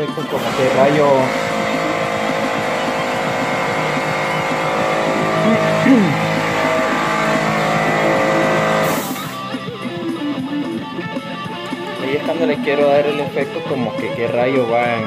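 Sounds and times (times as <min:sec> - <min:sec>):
air compressor humming: 0:00.0 - 0:09.5
short air hiss: 0:08.8 - 0:09.4.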